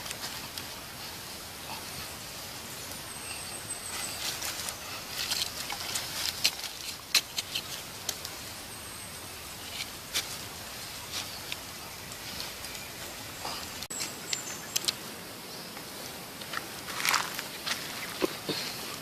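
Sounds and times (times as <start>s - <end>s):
steady fire hiss: 0.0s - 19.0s
campfire crackling and popping: 5.1s - 8.4s.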